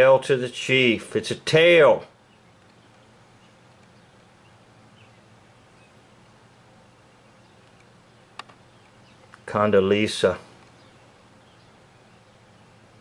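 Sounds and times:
faint steady hum: 0.0s - 13.0s
sharp click: 7.6s - 8.6s.

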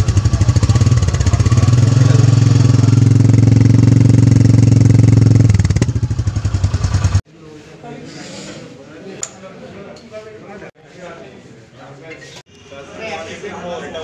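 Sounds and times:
motorcycle engine running: 0.0s - 7.2s.

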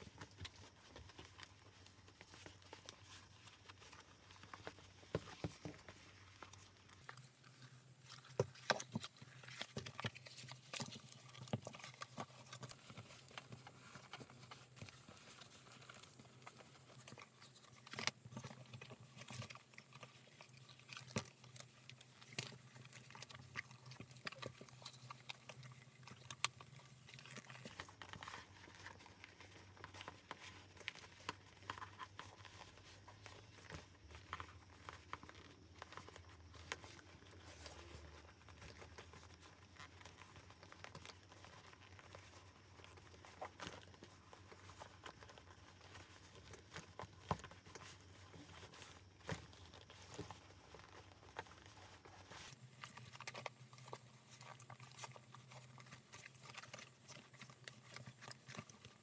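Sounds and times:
leather bag rustling and tapping: 0.0s - 7.4s.

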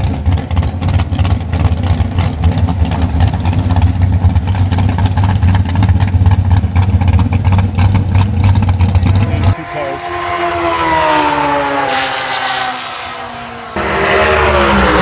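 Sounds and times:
loud engine idling choppily: 0.0s - 9.9s.

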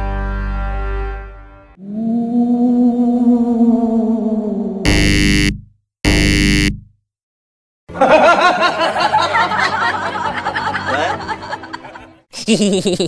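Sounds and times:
short synthesized tone: 4.9s - 6.8s
people talking and laughing: 8.0s - 13.0s.

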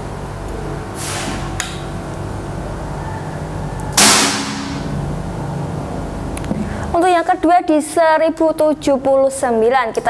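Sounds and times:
steady low hum: 0.0s - 9.7s
air rifle shot: 4.0s - 5.0s.

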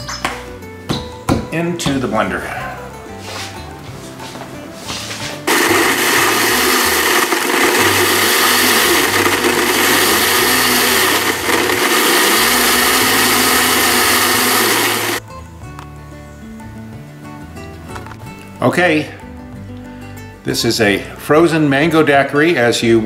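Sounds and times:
blender running at high speed: 5.5s - 15.2s.

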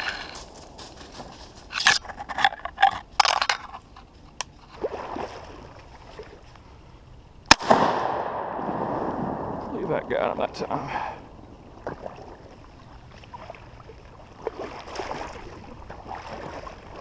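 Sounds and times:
rustling clatters: 0.0s - 4.8s
shotgun shot: 7.5s - 9.7s.

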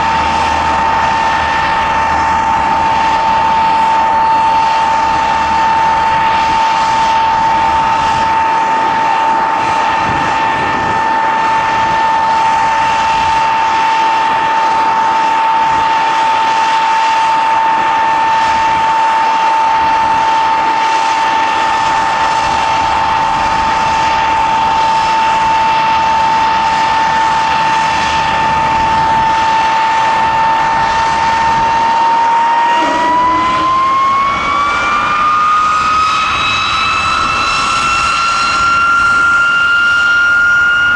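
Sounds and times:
jet engine rushing roar: 0.0s - 40.9s
jet engine whine: 0.0s - 40.9s.

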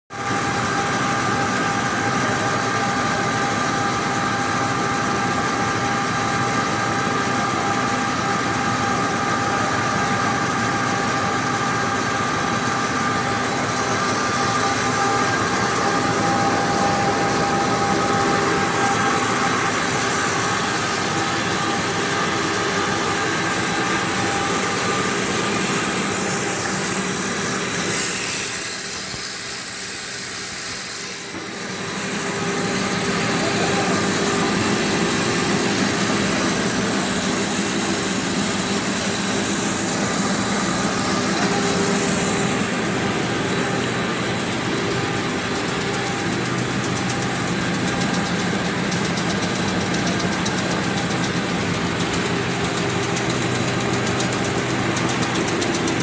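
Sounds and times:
production machinery whining: 0.2s - 56.0s.

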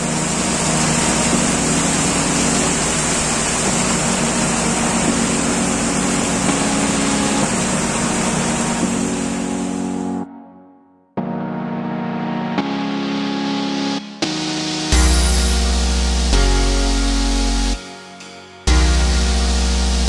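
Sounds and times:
rushing water and air: 0.0s - 10.1s
motorboat engine humming: 0.0s - 10.2s.

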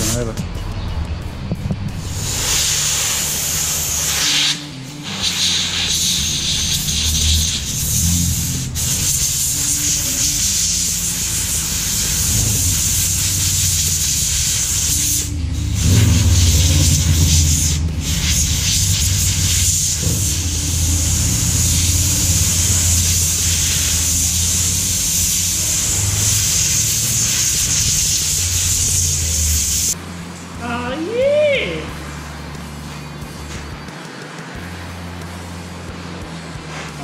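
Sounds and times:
compressed air hissing from blow gun: 2.0s - 30.0s.

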